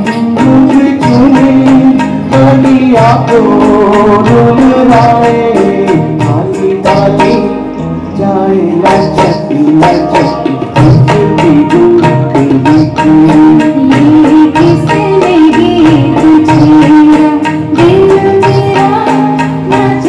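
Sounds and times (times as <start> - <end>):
hand drum beat: 0.0 - 7.6, 8.8 - 20.0
man singing: 0.0 - 15.0
live band playing: 0.0 - 20.0.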